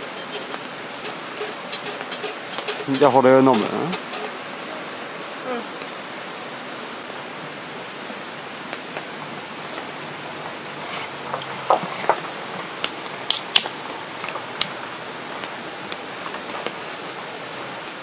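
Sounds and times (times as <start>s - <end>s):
rain hissing: 0.0s - 18.0s
can opening fizz: 13.3s - 13.8s.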